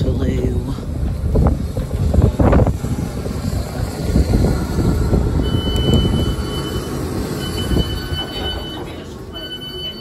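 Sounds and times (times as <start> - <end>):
electric train rumbling: 0.0 - 10.0
door alert beep: 5.4 - 10.0.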